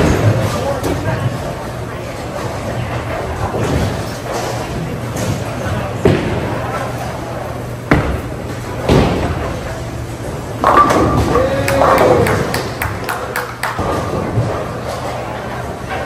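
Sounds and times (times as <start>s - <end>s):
bowling balls thudding: 7.8s - 15.2s.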